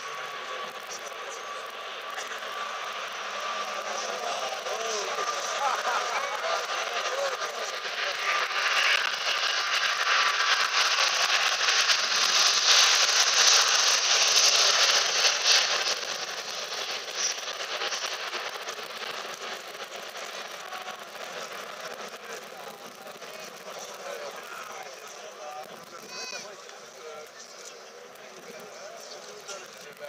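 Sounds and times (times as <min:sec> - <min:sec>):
jet engines at takeoff: 0:00.0 - 0:30.0.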